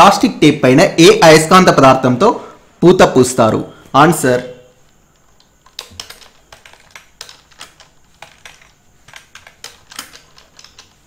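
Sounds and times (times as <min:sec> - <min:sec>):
keyboard keys clicking: 0:05.1 - 0:11.0.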